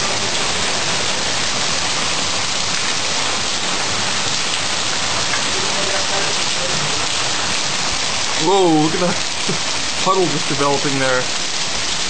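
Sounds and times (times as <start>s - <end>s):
heavy rain pouring: 0.0s - 12.0s.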